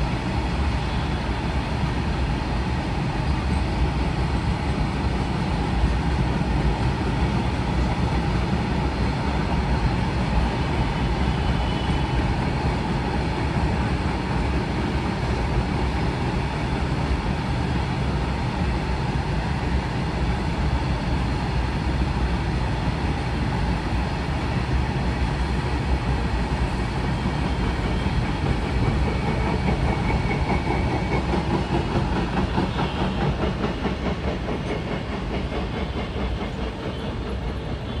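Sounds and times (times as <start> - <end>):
freight train rolling past: 0.0 - 38.0
wheels clacking over rail joints: 27.2 - 38.0.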